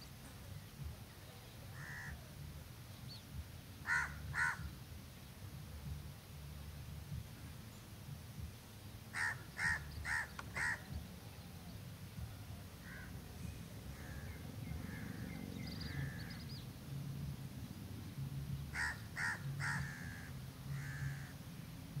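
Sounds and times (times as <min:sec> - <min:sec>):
low background rumble: 0:00.0 - 0:22.0
bird harsh cawing: 0:01.8 - 0:02.2, 0:03.8 - 0:04.7, 0:09.1 - 0:10.9, 0:12.8 - 0:13.1, 0:14.0 - 0:16.4, 0:18.7 - 0:21.4.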